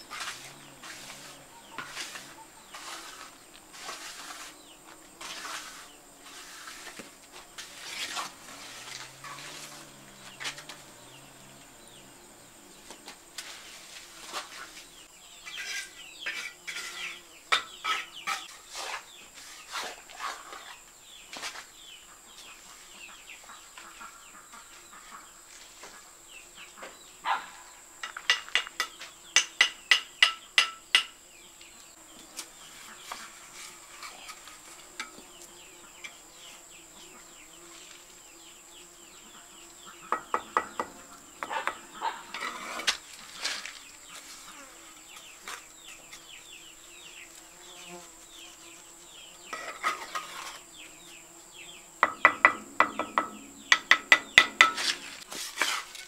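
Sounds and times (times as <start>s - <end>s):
insect drone: 0.0s - 22.0s, 25.2s - 56.0s
trowel tapping on bricks: 28.0s - 31.2s, 52.0s - 55.0s.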